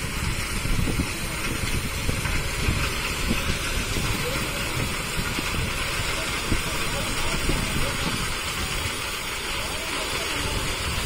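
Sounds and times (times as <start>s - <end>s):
wagons rolling rumble: 0.0s - 11.0s.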